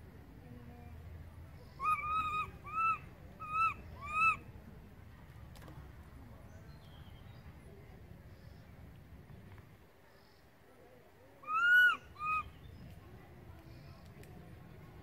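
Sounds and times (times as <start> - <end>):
baby monkey coo cries: 11.4 - 12.4.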